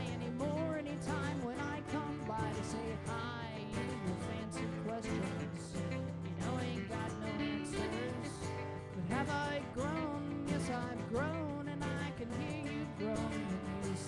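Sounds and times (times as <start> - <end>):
strummed acoustic guitars: 0.0 - 14.0.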